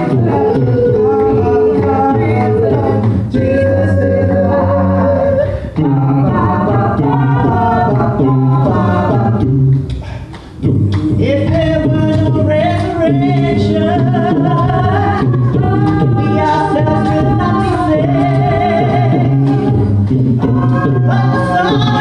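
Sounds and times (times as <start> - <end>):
a cappella group singing harmony: 0.0 - 22.0.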